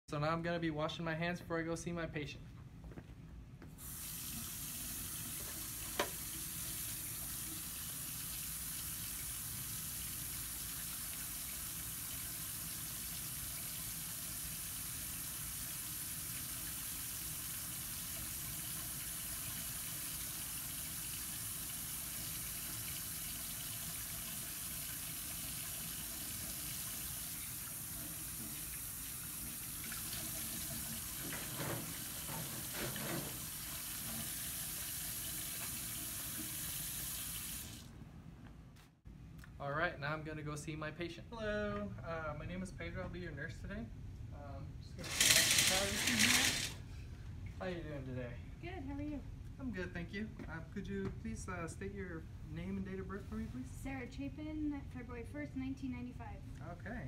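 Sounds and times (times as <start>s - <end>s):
faucet running: 3.8s - 37.9s, 45.0s - 46.8s.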